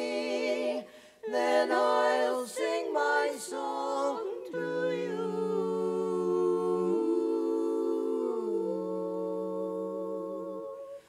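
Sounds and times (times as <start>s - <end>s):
women singing a cappella chord: 0.0s - 11.0s.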